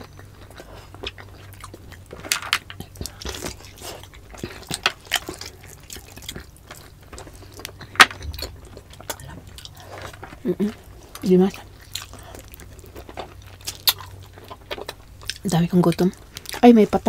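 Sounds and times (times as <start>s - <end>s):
wet chewing and lip smacks: 0.0s - 16.6s.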